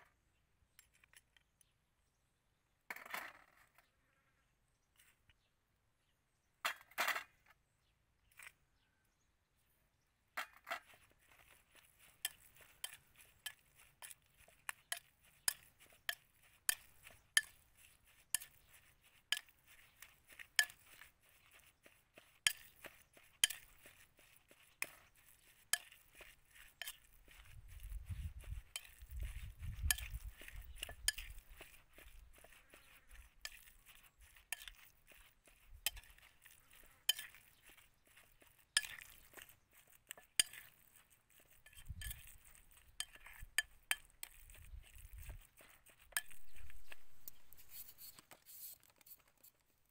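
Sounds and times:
metal spoon clinking against bowl: 11.4s - 21.6s, 22.4s - 24.0s, 24.6s - 47.6s.

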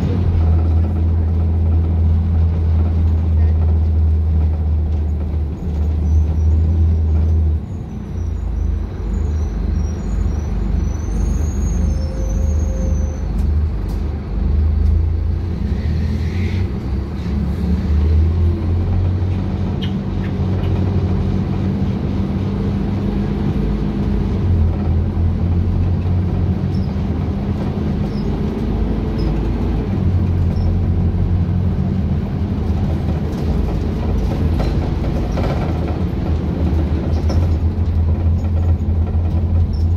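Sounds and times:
bus engine drone: 0.0s - 39.9s
road noise: 0.0s - 39.9s
brief squeal: 7.7s - 13.4s.

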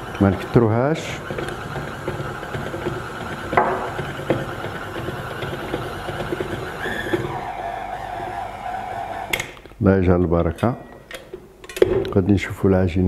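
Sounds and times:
beater slapping through dough: 0.0s - 9.3s
stand mixer motor whining: 0.0s - 9.6s.

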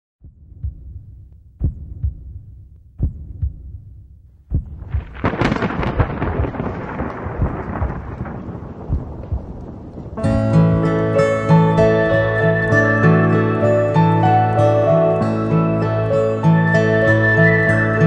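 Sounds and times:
low rumbling booms: 0.2s - 11.3s
thunder crash with crackle: 4.7s - 12.0s.

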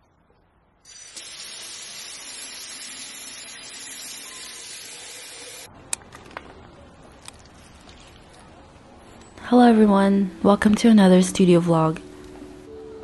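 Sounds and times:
faucet water filling watering can: 0.9s - 5.7s.

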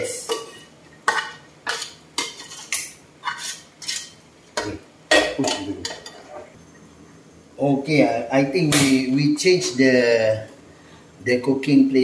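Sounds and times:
metal spoon scraping a pot: 0.3s - 4.2s, 5.4s - 6.6s.

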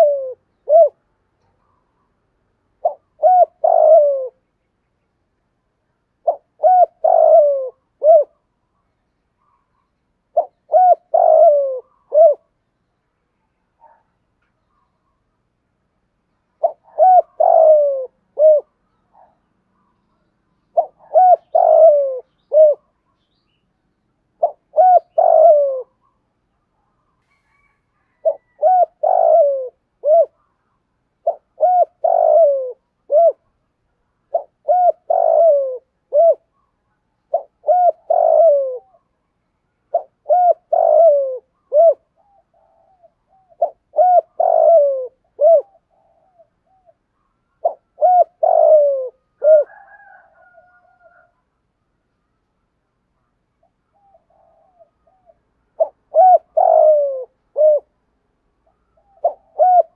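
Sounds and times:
dove cooing: 0.0s - 4.4s, 6.2s - 8.5s, 10.3s - 12.6s, 16.5s - 20.0s, 20.7s - 23.0s, 24.3s - 26.2s, 27.2s - 33.6s, 34.2s - 39.2s, 39.9s - 51.4s, 53.6s - 58.0s, 58.6s - 59.9s.

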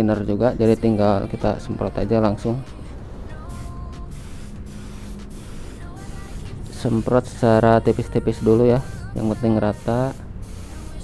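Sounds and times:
faint background music: 0.0s - 11.0s
spray gun hissing: 2.6s - 11.0s.

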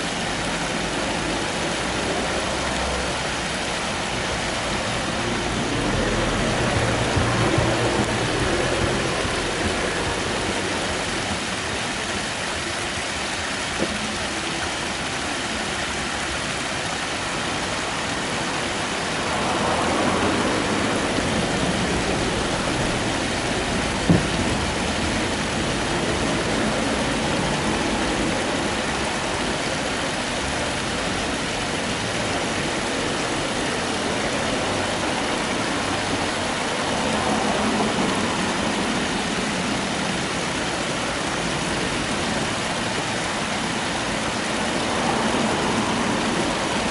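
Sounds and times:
creek water over pebbles: 0.0s - 46.9s.

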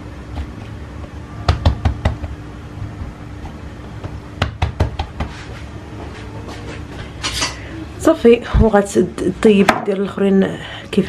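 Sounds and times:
steady low hum: 0.0s - 11.0s
hands tapping dough: 1.4s - 5.4s.

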